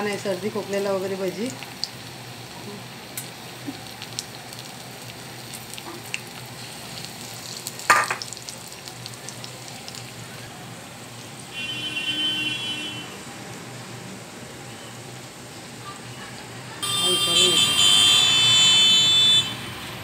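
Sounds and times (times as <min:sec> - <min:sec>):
food deep-frying in hot oil: 0:00.0 - 0:20.0
oil crackles: 0:00.4 - 0:10.5.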